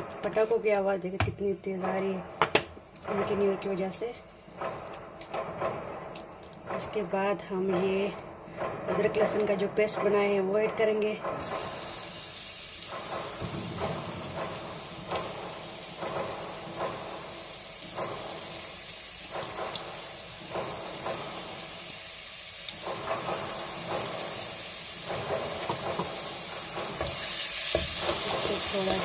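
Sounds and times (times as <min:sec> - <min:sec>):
firecrackers popping: 0:01.4 - 0:07.0, 0:11.2 - 0:29.0
paste sizzling in oil: 0:11.4 - 0:29.0.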